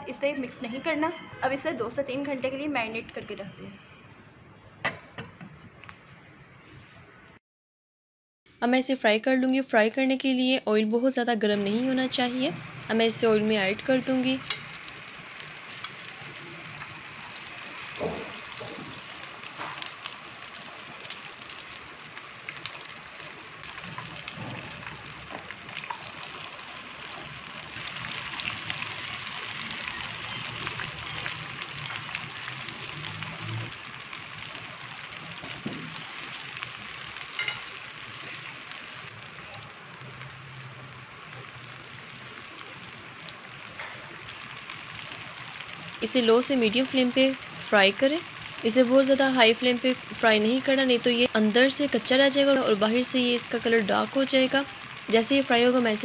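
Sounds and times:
food deep-frying in oil: 0:11.4 - 0:56.0.

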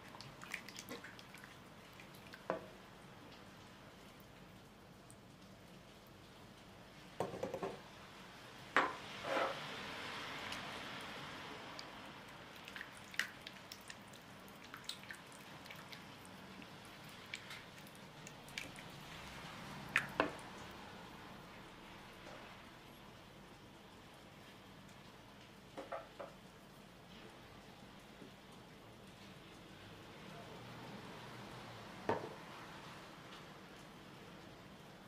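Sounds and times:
wet squelching stirring: 0:00.0 - 0:02.5, 0:12.5 - 0:20.7.

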